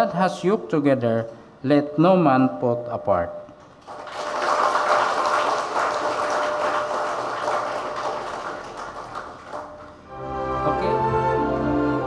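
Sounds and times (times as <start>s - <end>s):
crowd applauding: 3.8s - 10.1s.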